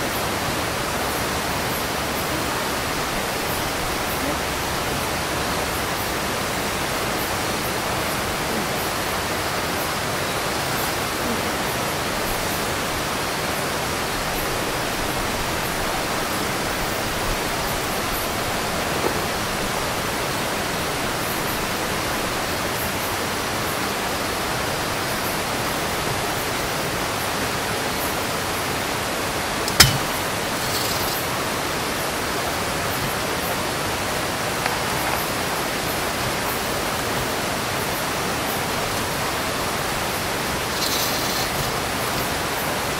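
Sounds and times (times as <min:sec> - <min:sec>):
river rushing: 0:00.0 - 0:42.9
cot frame clicks: 0:29.7 - 0:31.2.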